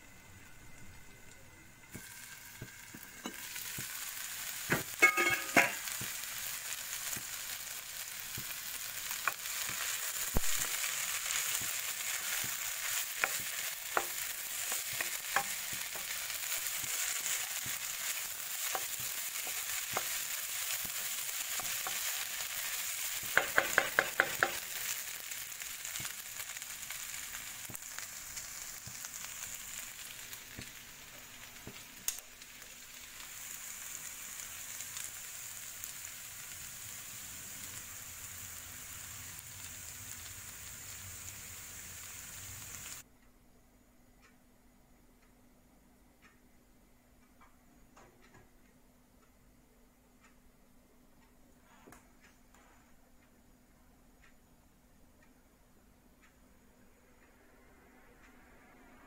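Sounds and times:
food sizzling in a frying pan: 0.0s - 43.1s.

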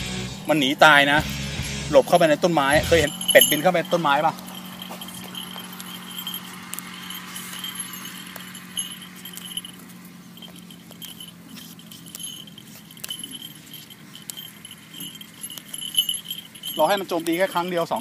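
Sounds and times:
small bells jingling: 0.0s - 18.0s.

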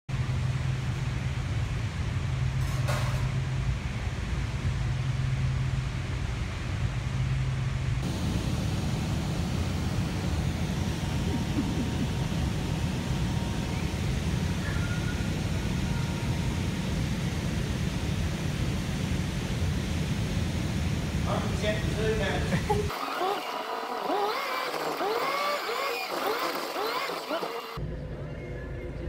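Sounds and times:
steady low hum: 0.1s - 23.0s
din of gin machinery: 8.0s - 27.8s.

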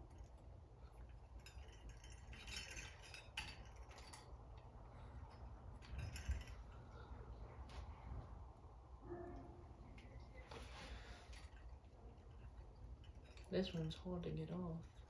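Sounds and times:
small metallic clinks: 0.0s - 7.2s, 11.0s - 15.0s.

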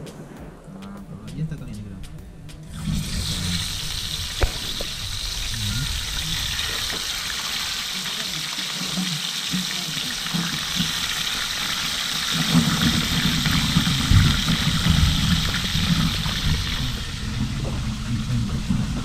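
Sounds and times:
low rumble: 0.0s - 7.7s, 12.6s - 19.0s
fish sizzling in oil: 2.8s - 19.0s.

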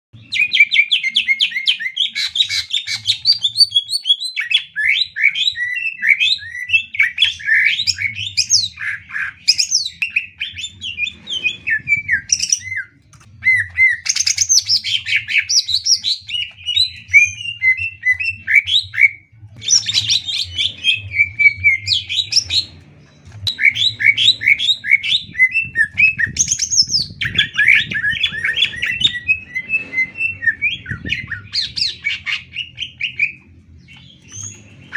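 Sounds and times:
bird singing chattering whistles: 23.4s - 34.9s.

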